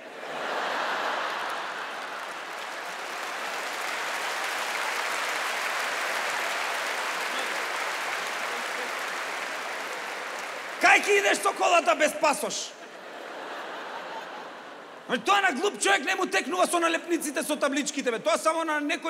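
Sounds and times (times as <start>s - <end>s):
large audience applauding: 0.0s - 12.5s.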